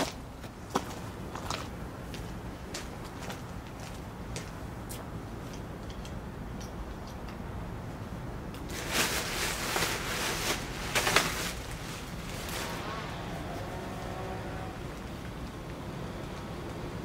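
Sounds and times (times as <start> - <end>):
steady low rumble: 1.0 - 17.0
nylon fabric rustling: 8.7 - 13.5.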